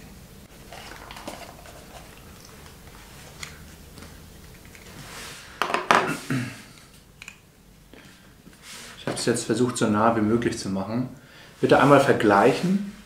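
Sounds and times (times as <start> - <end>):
headset rustling and clicking: 0.7 - 5.2.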